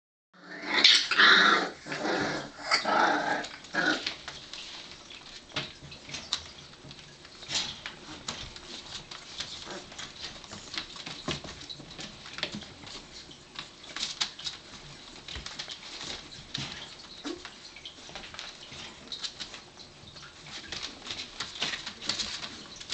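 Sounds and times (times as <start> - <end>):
puppies scuffling: 0.8 - 22.9.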